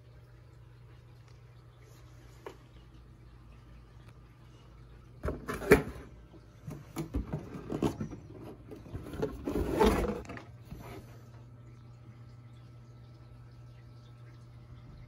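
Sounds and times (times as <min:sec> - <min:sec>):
cardboard rustling scrape: 0:09.0 - 0:11.0.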